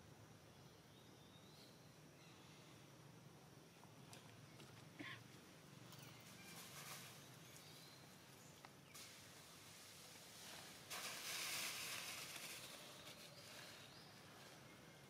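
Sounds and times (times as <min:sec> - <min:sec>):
faint outdoor background: 0:00.0 - 0:15.0
burst of hiss-like noise: 0:08.9 - 0:13.7.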